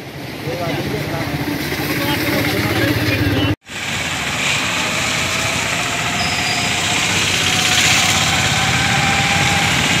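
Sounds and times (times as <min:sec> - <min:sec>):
small engine driving through water: 0:03.7 - 0:10.0
tyres hissing on wet road: 0:03.7 - 0:10.0.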